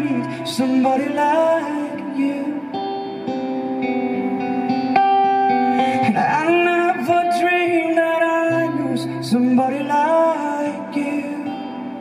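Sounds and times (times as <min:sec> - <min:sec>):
man singing: 0:00.0 - 0:03.3, 0:05.7 - 0:12.0
acoustic guitar notes: 0:00.0 - 0:12.0.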